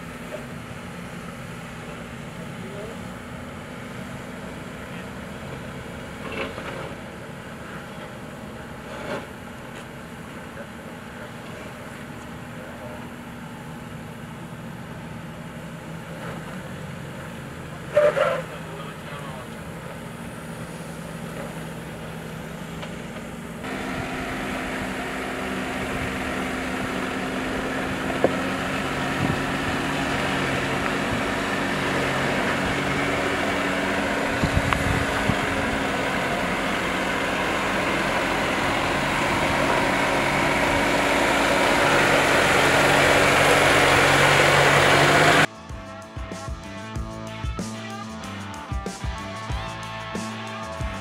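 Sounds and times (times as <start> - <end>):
vehicle engine drone: 0.0 - 51.0
guitar music: 41.7 - 51.0.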